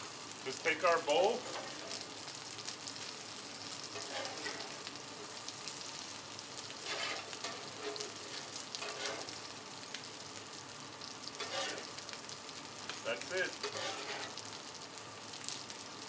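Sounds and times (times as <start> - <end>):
food sizzling on a griddle: 0.0 - 16.0
metal spatula scraping griddle: 1.2 - 2.1, 3.9 - 5.0, 6.6 - 9.6, 11.2 - 12.1, 12.9 - 14.5.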